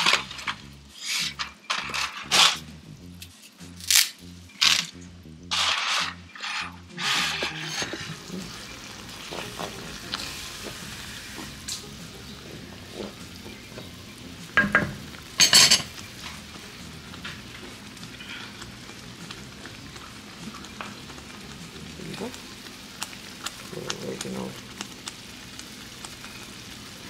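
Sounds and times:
pot of water boiling: 5.6 - 27.0
sauce simmering in a pan: 8.0 - 27.0.

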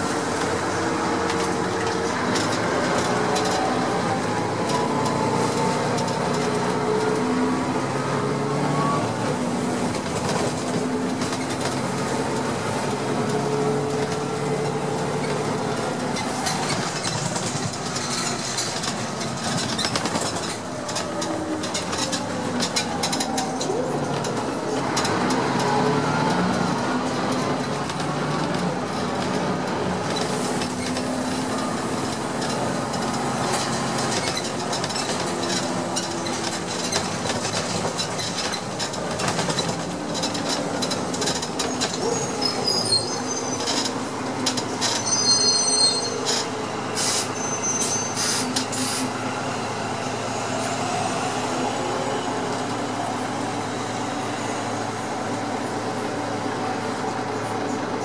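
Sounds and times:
road rumble: 0.0 - 58.0
high squeals: 41.6 - 44.0, 44.7 - 51.4.

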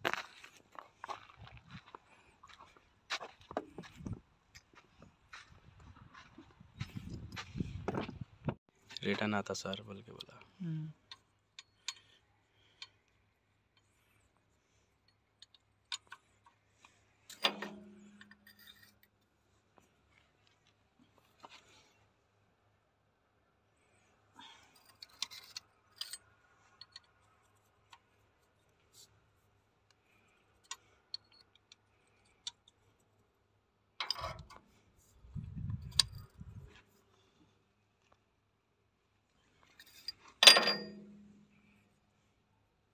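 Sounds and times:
wrench clinking against metal: 34.0 - 34.6, 39.8 - 41.4
ringing metallic clank: 40.4 - 41.4.

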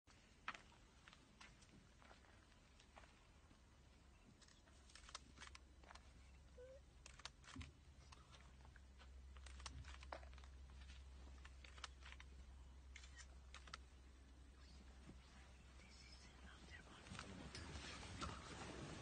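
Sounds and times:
faint low hum: 0.1 - 19.0
soft clicks and crackles: 4.1 - 19.0.

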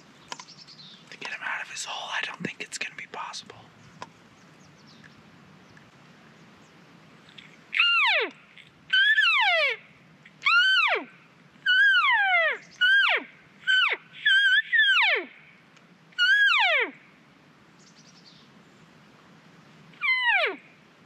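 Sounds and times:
elk cow mewing calls: 7.7 - 9.8.

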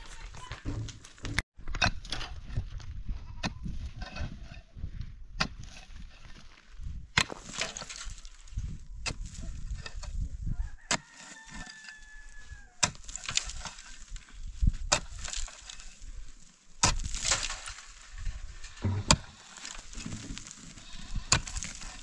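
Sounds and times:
soil and pebbles rattling: 0.0 - 22.0
pickaxe striking stony ground: 0.7 - 4.5, 5.4 - 6.3, 7.2 - 8.3, 9.0 - 10.2, 12.8 - 13.9, 14.6 - 16.0, 16.8 - 22.0.

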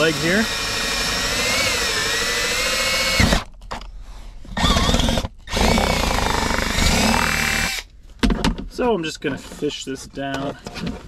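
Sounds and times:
power drill whine: 0.0 - 3.4, 4.6 - 7.8.

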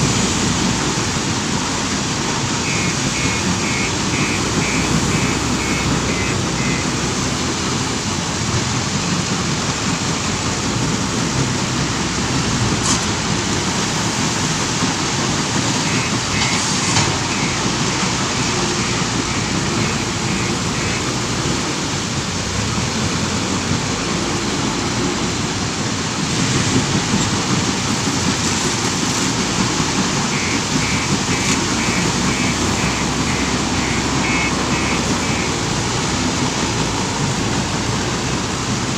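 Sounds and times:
diesel engine working: 0.0 - 38.9
short high warning beeps: 2.6 - 7.0, 15.8 - 21.2, 30.2 - 35.7.

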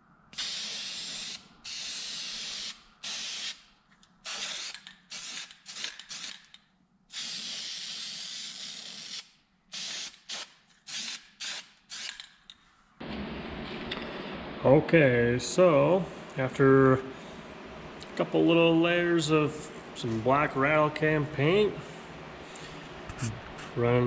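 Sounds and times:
spray paint can hissing: 0.4 - 6.5, 7.1 - 12.2.

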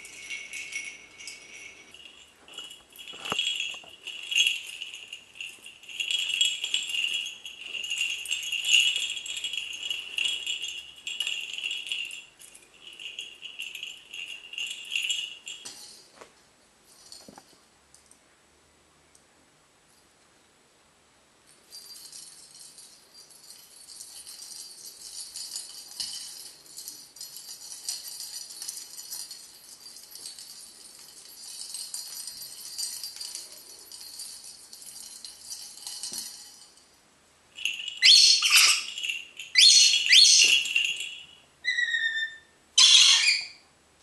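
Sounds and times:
plastic toy jingling rattle: 0.0 - 16.1, 21.6 - 43.5
parrot screeching: 38.0 - 38.9, 39.6 - 40.6, 41.6 - 43.6.

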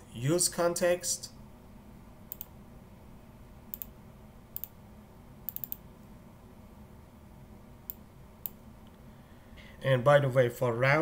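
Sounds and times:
faint low hum: 0.0 - 11.0
computer mouse clicking: 2.3 - 2.5, 3.7 - 3.9, 4.6 - 4.8, 5.5 - 5.8, 7.9 - 8.6.

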